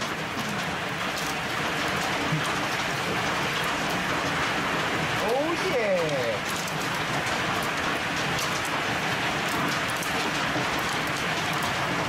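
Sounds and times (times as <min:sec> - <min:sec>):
hail and rain falling: 0:00.0 - 0:12.0
ticks of hailstones: 0:00.0 - 0:12.0.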